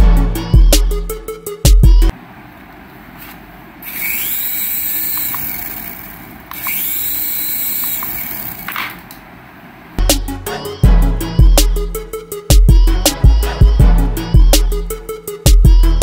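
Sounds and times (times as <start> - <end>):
toy helicopter motors whining: 3.8 - 8.9
rotors whirring hiss: 3.8 - 9.0.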